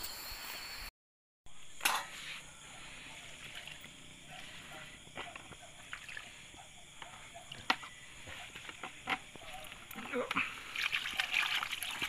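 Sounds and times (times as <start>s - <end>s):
water sloshing: 9.5s - 12.0s.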